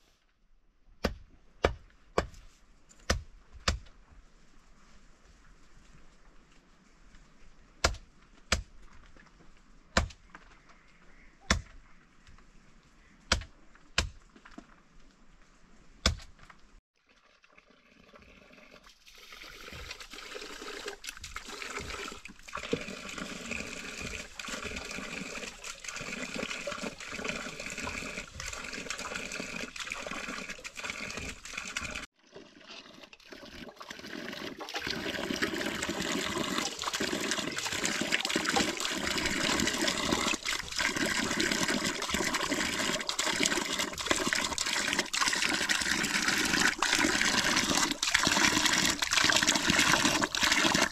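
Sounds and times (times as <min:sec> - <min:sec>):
water pouring from hose: 0:17.0 - 0:50.9.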